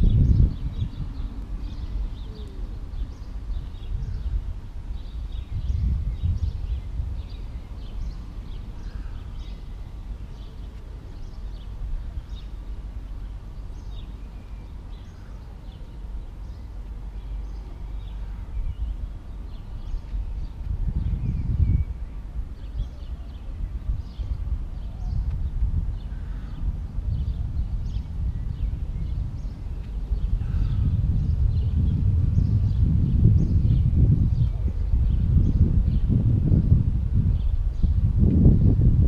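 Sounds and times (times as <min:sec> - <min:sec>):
small birds chirping: 0:00.0 - 0:36.4
wind buffeting microphone: 0:00.0 - 0:39.0.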